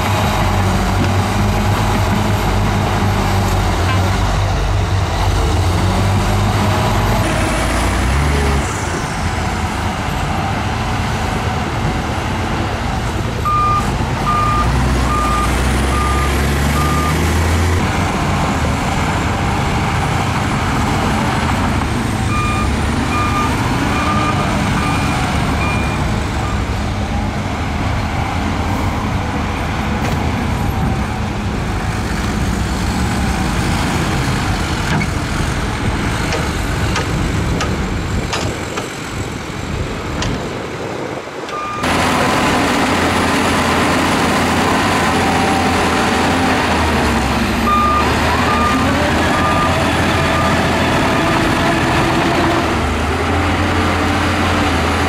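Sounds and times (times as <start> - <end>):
bulldozer diesel engine under load: 0.0 - 55.0
reversing alarm beeping: 13.4 - 17.3, 22.3 - 26.7, 41.5 - 42.0, 47.7 - 50.8.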